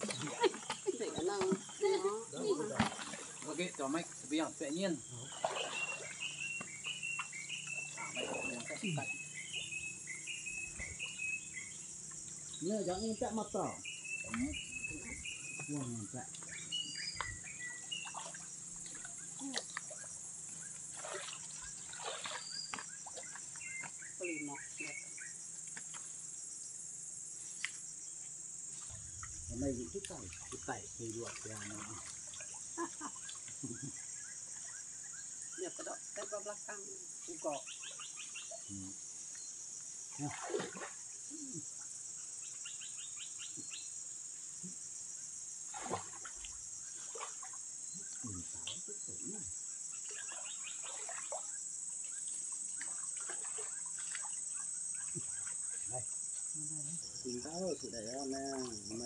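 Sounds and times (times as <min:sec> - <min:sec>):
water sloshing around wading person: 0:00.0 - 0:04.4, 0:05.0 - 0:09.7, 0:14.2 - 0:25.1, 0:28.7 - 0:33.9, 0:40.1 - 0:41.1, 0:45.7 - 0:48.9, 0:50.0 - 0:56.5
water splashes: 0:00.0 - 0:09.7, 0:12.8 - 0:25.0, 0:28.7 - 0:33.9, 0:40.1 - 0:41.1, 0:45.7 - 0:49.4, 0:50.0 - 0:56.2
high insect chirring: 0:00.0 - 0:59.0
bird chirps: 0:04.7 - 0:20.8, 0:21.5 - 0:25.4, 0:37.5 - 0:38.8, 0:49.2 - 0:51.1.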